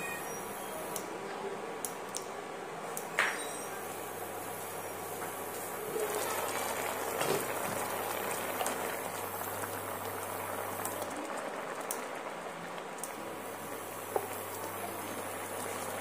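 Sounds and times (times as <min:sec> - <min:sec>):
gravy bubbling and spluttering: 0:05.8 - 0:16.0.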